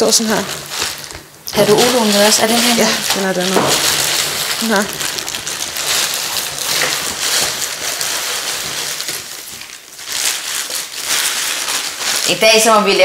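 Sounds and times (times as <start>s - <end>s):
plastic bag rustling: 0.0s - 13.0s.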